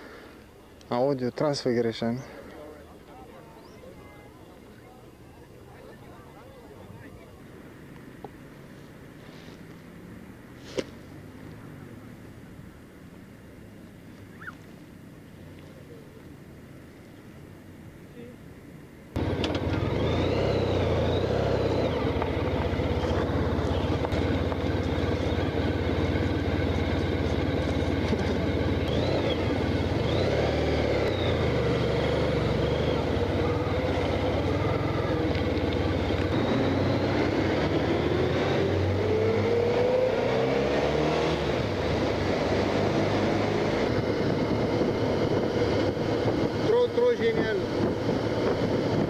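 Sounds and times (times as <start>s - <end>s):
motorcycle engine accelerating: 19.2s - 49.0s.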